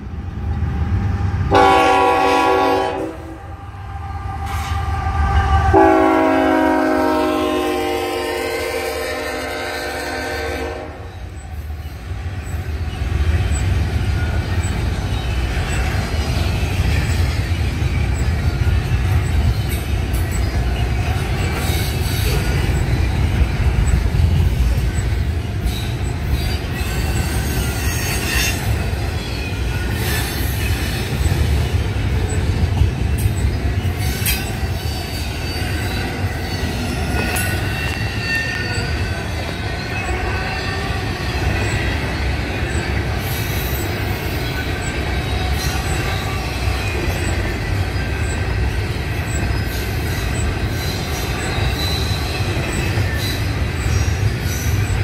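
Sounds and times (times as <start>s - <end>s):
freight train rumbling past: 0.0s - 55.0s
train clanks: 0.0s - 55.0s
locomotive air horn: 1.5s - 3.5s, 4.9s - 11.1s
high wheel squeals: 11.1s - 55.0s.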